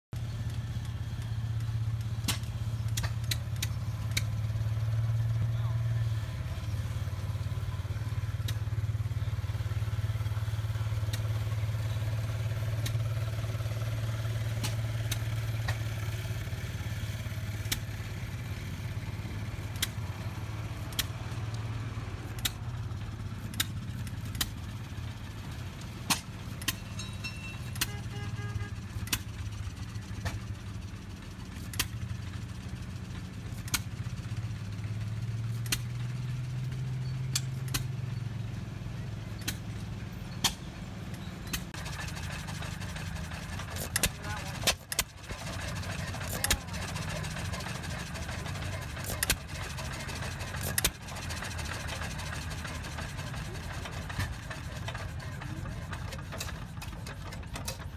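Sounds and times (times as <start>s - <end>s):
engine humming: 0.1s - 57.9s
sharp clicks: 0.4s - 4.4s.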